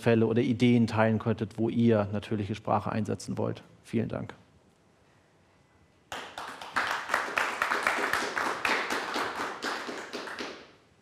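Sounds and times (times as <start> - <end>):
audience applauding: 6.1 - 10.8.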